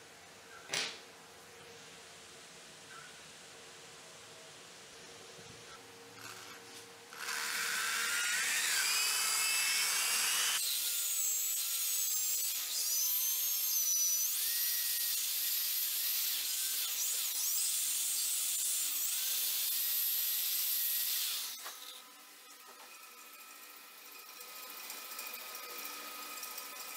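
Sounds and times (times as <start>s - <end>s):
rotary tool sanding metal: 6.2s - 26.9s.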